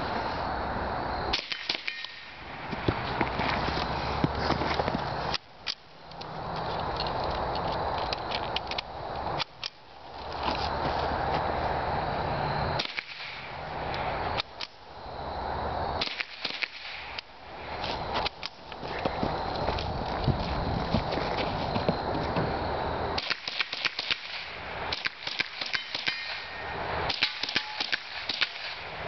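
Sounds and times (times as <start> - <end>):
steady hiss: 0.0 - 29.0
rifle shots: 27.1 - 28.9.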